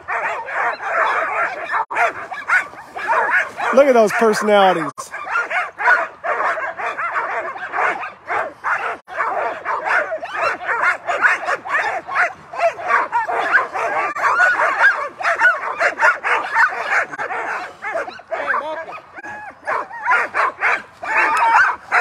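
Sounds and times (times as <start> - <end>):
dogs barking and yipping: 0.0 - 22.0.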